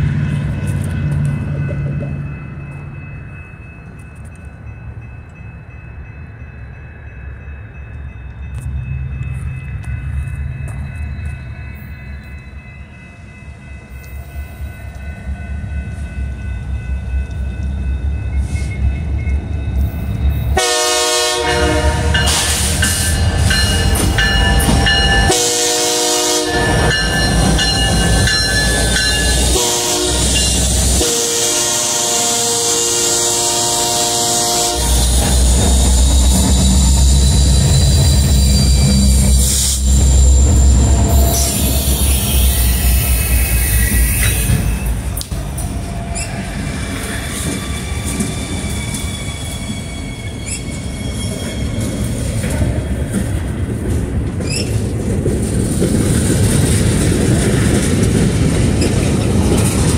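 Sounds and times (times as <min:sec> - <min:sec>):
diesel locomotive engines rumbling: 0:00.0 - 0:59.9
train air horn blasts: 0:20.6 - 0:23.0, 0:25.1 - 0:27.0, 0:29.2 - 0:37.3.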